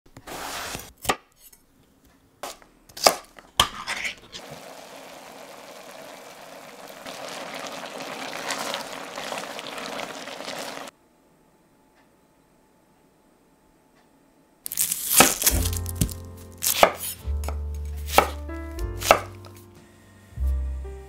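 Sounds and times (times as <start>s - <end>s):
steady hiss from cooking pot: 4.3s - 10.9s
knife cutting on wooden board: 14.7s - 18.4s, 19.0s - 19.3s.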